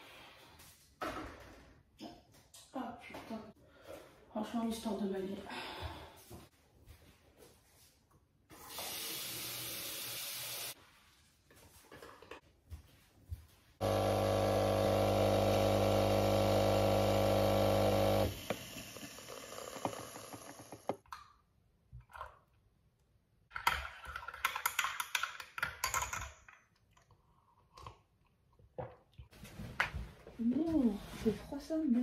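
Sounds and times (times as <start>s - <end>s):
coffee machine pump humming: 13.8s - 21.0s.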